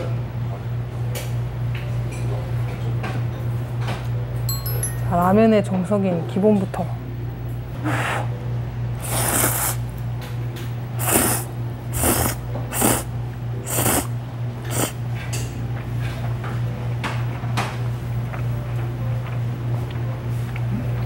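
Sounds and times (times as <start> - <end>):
steady low hum: 0.0 - 21.0
noodles slurped: 9.0 - 9.8, 11.0 - 15.0.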